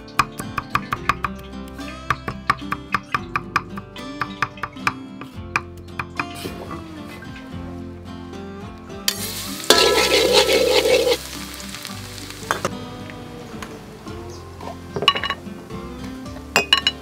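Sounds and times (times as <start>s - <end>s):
garlic sizzling in hot oil: 9.1s - 15.8s.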